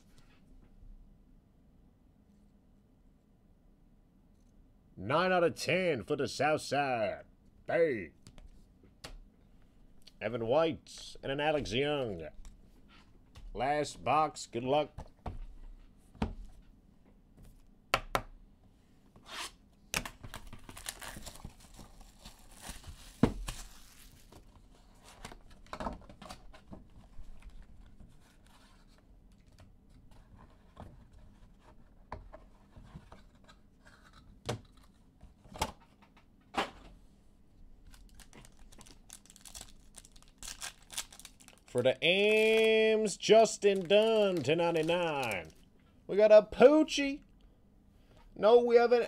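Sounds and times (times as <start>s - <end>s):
plastic wrapping tearing: 20.3s - 24.2s, 37.9s - 42.9s, 43.6s - 45.6s.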